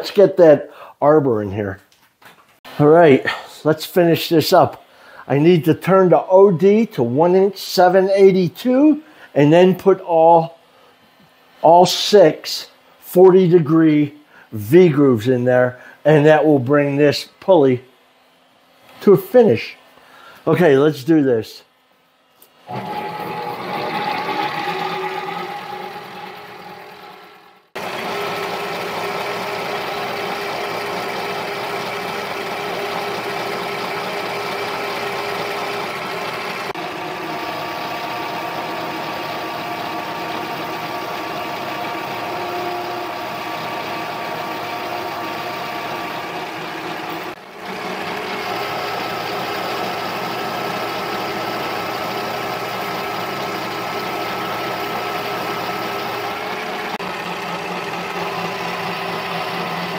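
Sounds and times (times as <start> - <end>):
lathe motor and gear whine: 22.4 - 59.9.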